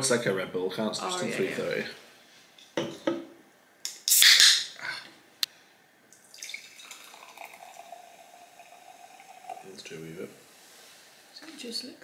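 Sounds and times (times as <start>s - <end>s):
soda pouring into a glass: 6.2s - 10.3s.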